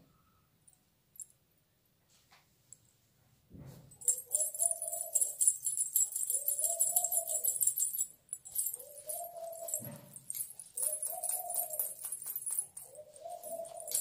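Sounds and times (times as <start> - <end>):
anklet bells jingling: 3.9 - 14.0.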